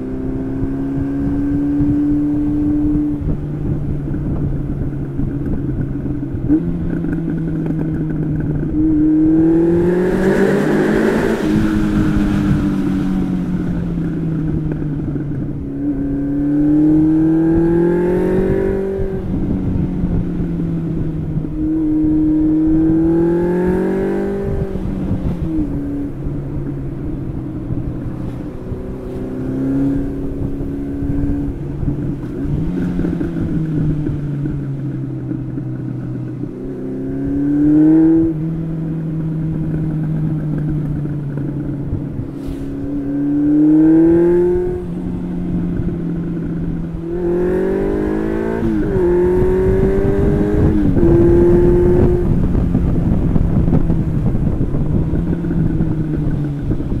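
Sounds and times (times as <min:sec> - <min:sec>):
motorcycle engine revving: 0:00.0 - 0:57.0
wind buffeting microphone: 0:00.0 - 0:57.0.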